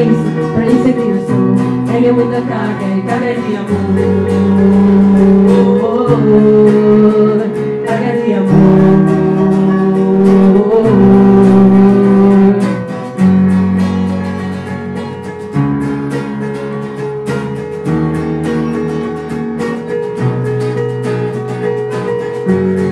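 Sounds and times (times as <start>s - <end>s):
person singing: 0.0s - 13.0s
acoustic guitar strumming: 0.0s - 22.9s
keyboard chords: 0.0s - 22.9s.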